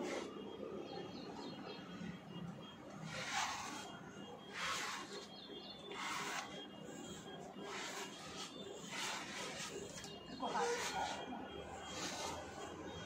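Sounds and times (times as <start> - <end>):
brush stroking through fur: 4.5 - 5.2, 6.0 - 6.5, 7.7 - 11.2, 12.0 - 12.5.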